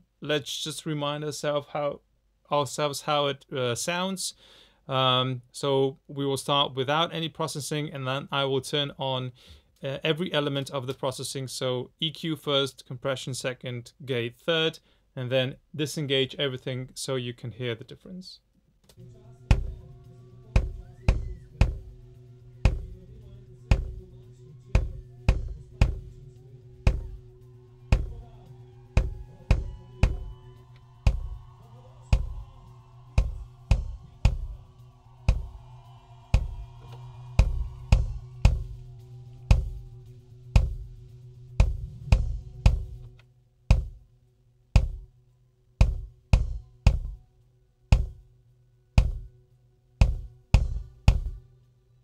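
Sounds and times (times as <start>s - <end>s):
snare and cymbal bleed: 19.0s - 44.0s
kick drum: 19.2s - 41.0s, 41.6s - 44.1s, 44.8s - 45.1s, 45.8s - 47.2s, 47.9s - 48.3s, 49.0s - 49.3s, 50.0s - 51.4s.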